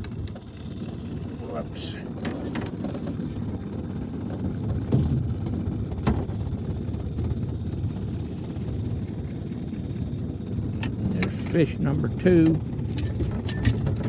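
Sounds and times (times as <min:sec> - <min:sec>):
outboard motor rumbling: 0:00.0 - 0:14.0.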